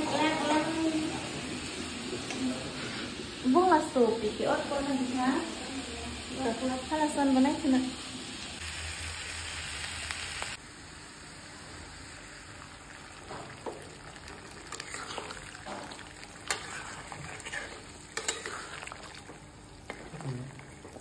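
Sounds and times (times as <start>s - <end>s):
food sizzling in a wok: 0.0s - 21.0s
spatula scraping a pan: 14.7s - 19.0s.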